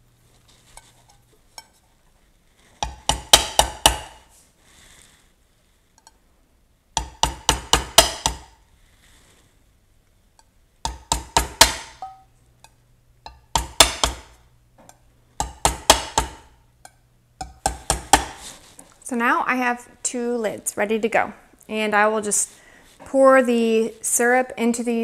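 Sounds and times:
faint low hum: 0.0 - 25.0
hammer tapping nail through metal lid: 2.8 - 4.2, 7.0 - 8.5, 10.8 - 14.4, 15.4 - 18.5.

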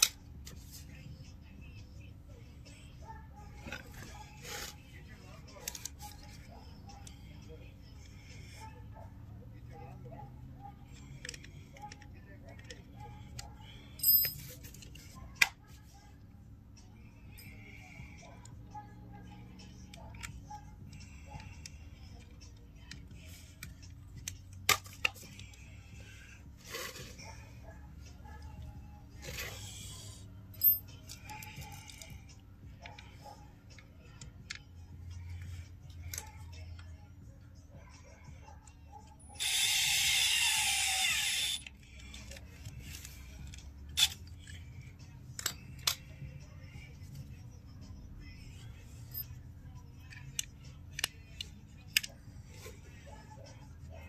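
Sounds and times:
metal parts and tools clicking: 10.8 - 15.6, 29.2 - 34.8, 38.6 - 46.3, 48.8 - 52.8
power drill driving a screw: 39.4 - 41.6.

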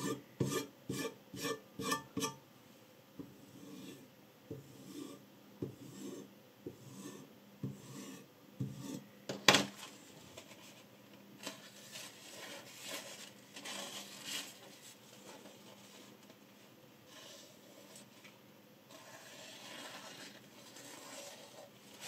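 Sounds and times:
paper towel rustling on blade: 9.8 - 22.0.

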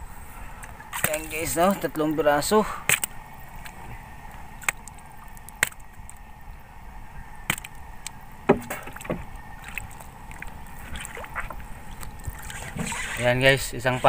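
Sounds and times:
water washing: 0.6 - 6.3, 7.3 - 14.0
metal spear knocking on wooden boat: 8.5 - 9.2.

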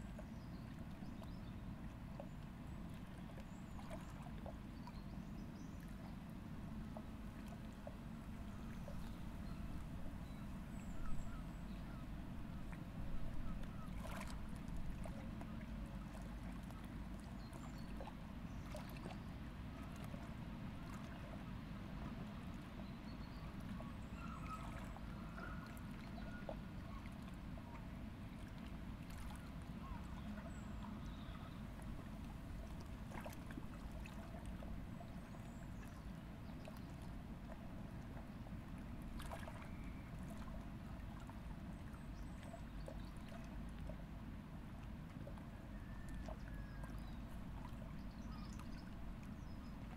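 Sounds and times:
faint bird calls: 8.4 - 12.2, 13.2 - 14.3, 23.3 - 27.9, 29.2 - 31.8.

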